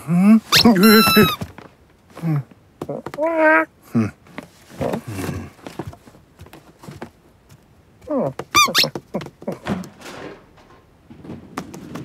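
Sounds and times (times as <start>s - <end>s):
cartoon cat squeaky strained cries: 0.5s - 1.4s, 8.6s - 8.9s.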